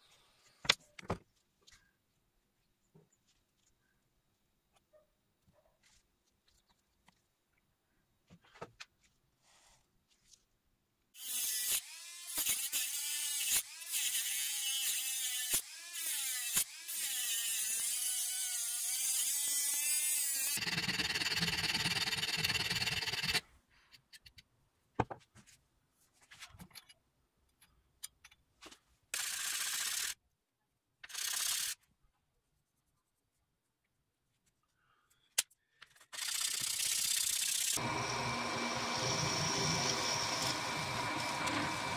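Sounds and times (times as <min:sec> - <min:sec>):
cut-off disc whining through metal: 0:37.8 - 0:41.9.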